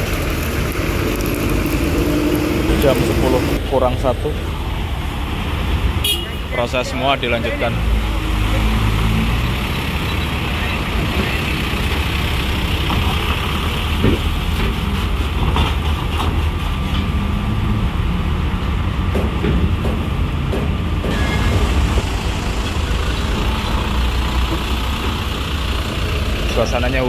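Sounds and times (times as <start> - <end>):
truck diesel engines rumbling: 0.0 - 27.0
sharp knocks: 19.0 - 22.1.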